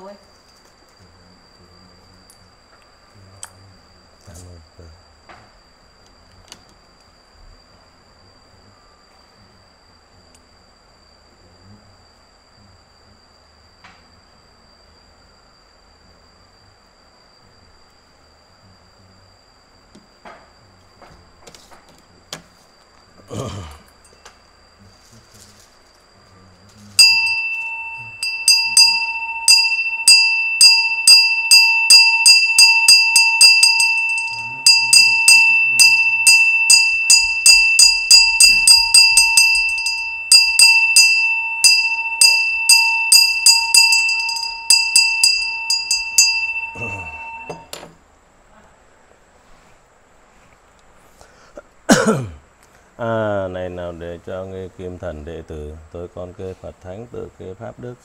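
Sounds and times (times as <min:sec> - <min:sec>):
hand bell ringing: 0:27.0 - 0:47.7.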